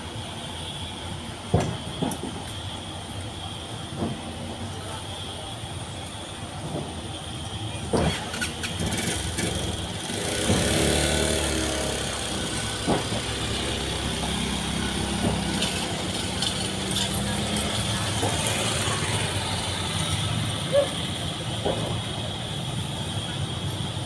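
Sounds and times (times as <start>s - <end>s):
motorcycle engines running: 7.8s - 24.0s.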